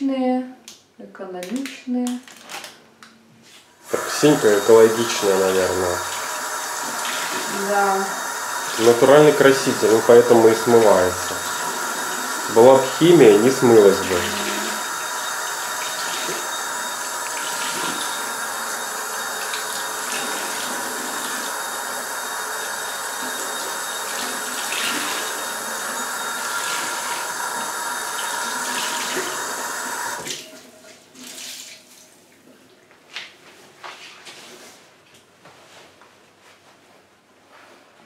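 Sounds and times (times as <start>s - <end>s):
tap water running: 3.8s - 32.6s
sponge rinsed under water: 3.9s - 30.2s.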